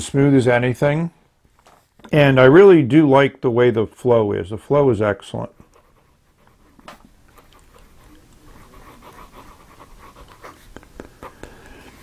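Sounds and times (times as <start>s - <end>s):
pen nib scratching paper: 5.6s - 12.0s.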